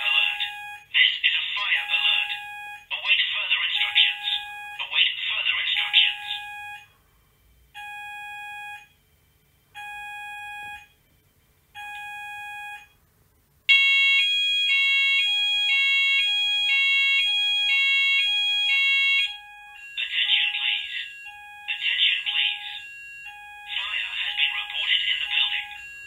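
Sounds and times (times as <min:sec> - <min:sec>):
fire alarm pulsed beeps: 0:00.0 - 0:00.9, 0:01.7 - 0:02.9, 0:03.7 - 0:04.8, 0:05.7 - 0:06.9, 0:07.8 - 0:09.0, 0:09.8 - 0:11.0, 0:11.8 - 0:13.0, 0:13.7 - 0:26.0
fire alarm two-tone evacuate signal: 0:00.0 - 0:00.9, 0:01.7 - 0:02.9, 0:03.7 - 0:04.9, 0:05.7 - 0:06.9, 0:07.8 - 0:08.9, 0:09.8 - 0:10.9, 0:13.7 - 0:26.0.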